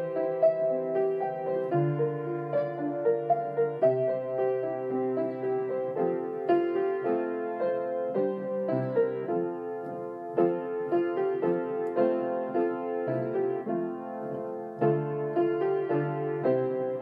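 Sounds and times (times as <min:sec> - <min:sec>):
gentle piano melody: 0:00.0 - 0:17.0.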